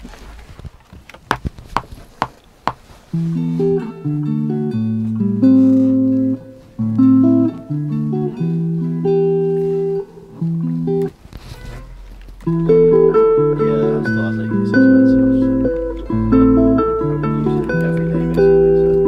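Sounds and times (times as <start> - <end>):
electric guitar chords and notes: 3.2 - 11.2, 12.2 - 19.0.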